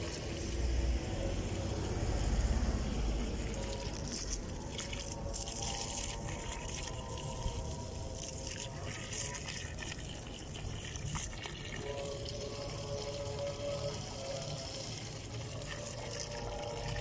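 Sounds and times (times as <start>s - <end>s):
water pouring and splashing: 0.0s - 17.0s
low rumble: 0.1s - 7.4s.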